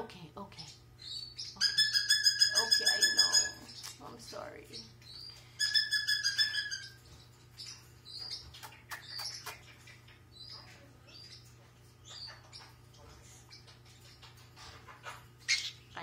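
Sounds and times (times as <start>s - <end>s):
parrot squawking: 1.1s - 3.9s, 5.6s - 7.0s, 14.9s - 16.0s.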